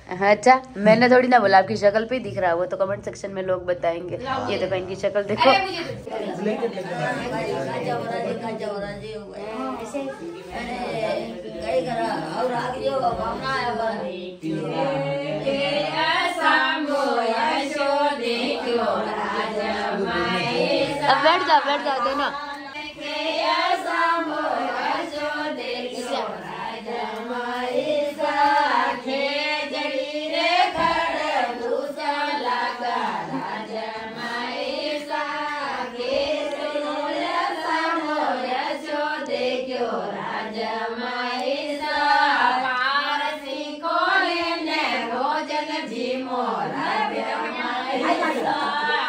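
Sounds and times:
person singing: 9.4s - 17.4s.

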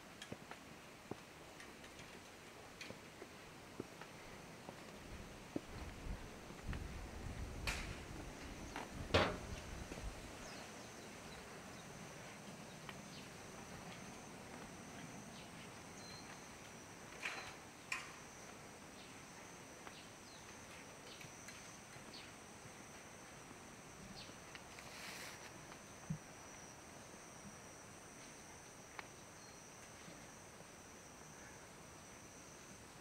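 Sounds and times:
insects trilling: 3.3s - 33.0s
brief hiss: 24.7s - 25.5s.

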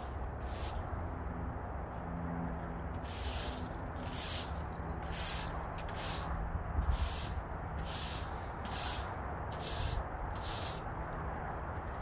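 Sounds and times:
broom sweeping leaves on paving: 0.0s - 1.0s, 2.9s - 11.0s.

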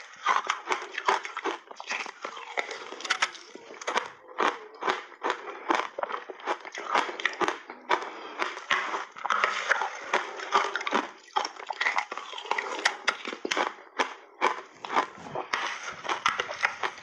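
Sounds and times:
ice crunching while chewed: 0.0s - 17.0s.

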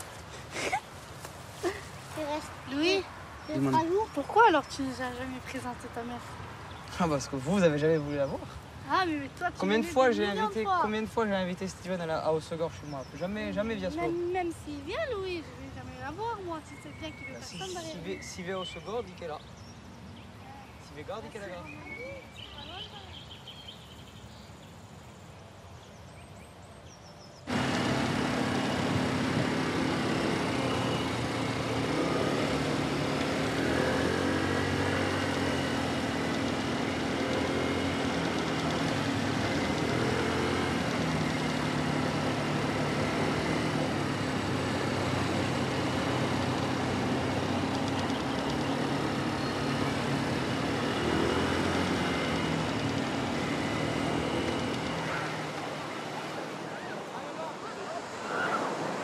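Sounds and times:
motor scooter engine running: 27.5s - 56.8s.

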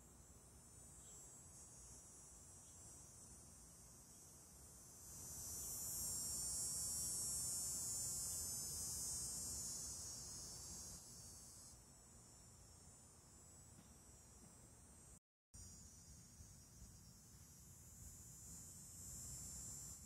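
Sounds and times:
cicada buzzing: 0.8s - 12.6s, 15.6s - 20.0s.

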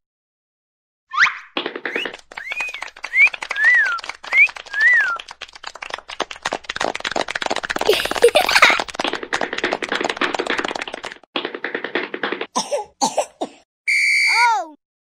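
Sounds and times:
cartoon whistled glides: 1.1s - 5.3s
fast run of clicks: 1.6s - 12.5s.

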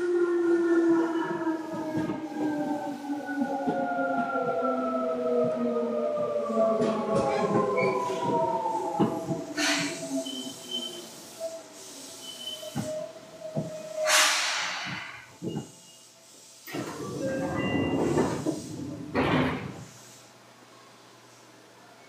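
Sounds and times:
compressed air hissing: 14.0s - 15.1s.

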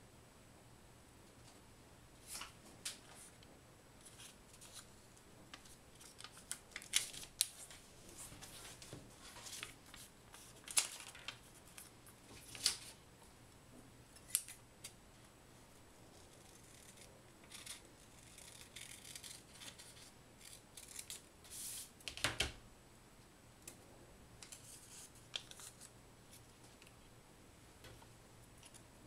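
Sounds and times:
paper crinkling: 5.5s - 13.0s
scissors snipping paper: 16.4s - 21.2s.

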